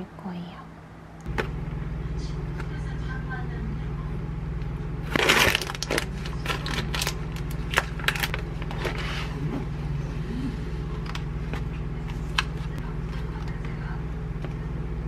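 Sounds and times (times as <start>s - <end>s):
steady low hum: 0.0s - 15.0s
plastic wrapping crinkling: 5.1s - 9.2s.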